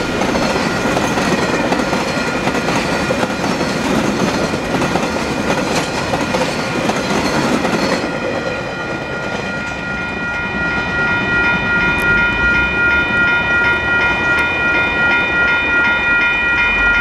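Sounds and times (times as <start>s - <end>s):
level crossing warning bell: 0.0s - 17.0s
train rumbling away: 0.0s - 17.0s.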